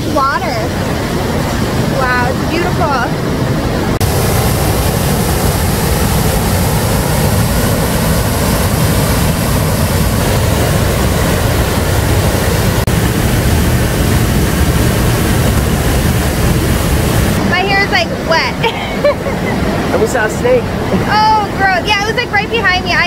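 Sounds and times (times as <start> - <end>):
waterfall roaring: 0.0 - 23.0.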